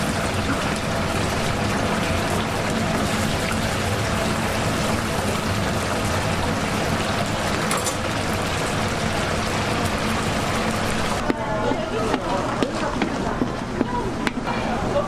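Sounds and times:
oil sizzling in deep fryer: 0:00.0 - 0:11.4.

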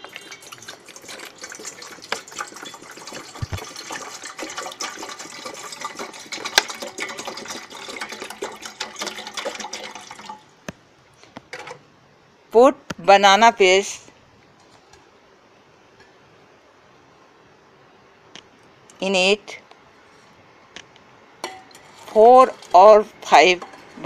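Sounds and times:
water pouring into metal pot: 0:00.0 - 0:10.5.

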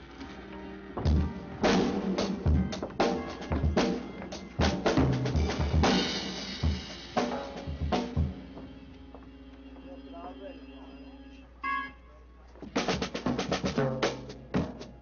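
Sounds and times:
drum kit playing: 0:01.0 - 0:09.2, 0:12.6 - 0:15.0.

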